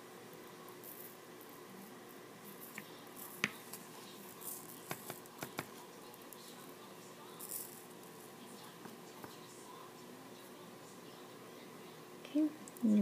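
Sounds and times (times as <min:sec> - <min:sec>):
faint rustling of paper: 0:00.4 - 0:10.6
glitter clicking on paper: 0:02.6 - 0:06.4.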